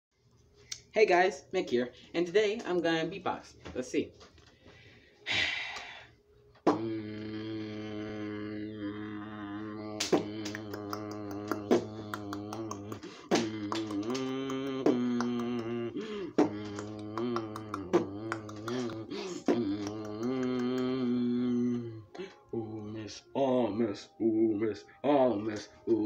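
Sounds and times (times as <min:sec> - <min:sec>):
beatboxing vocal percussion: 0:06.6 - 0:22.9.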